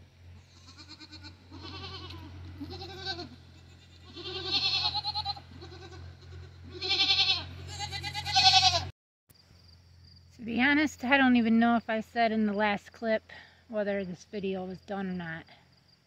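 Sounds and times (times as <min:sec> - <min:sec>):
goats bleating: 0:00.4 - 0:08.9.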